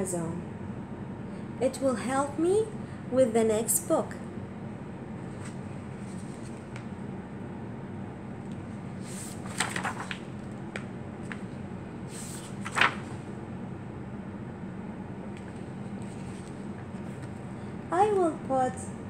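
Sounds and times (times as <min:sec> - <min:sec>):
book pages rustling: 0:05.3 - 0:07.0, 0:08.5 - 0:13.3, 0:15.4 - 0:17.6
page flap: 0:09.0 - 0:13.3.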